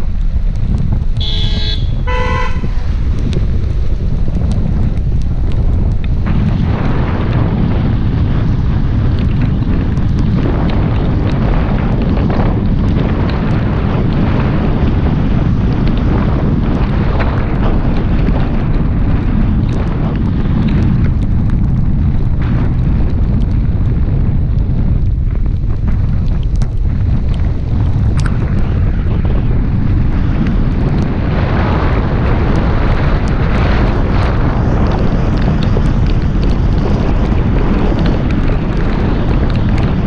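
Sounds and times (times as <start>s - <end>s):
tyres on a wet road: 0.0s - 40.0s
wind rumbling on microphone: 0.0s - 40.0s.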